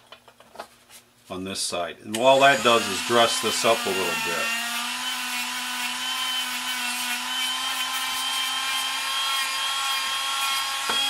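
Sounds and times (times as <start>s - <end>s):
rotary tool motor whine: 2.3s - 11.0s.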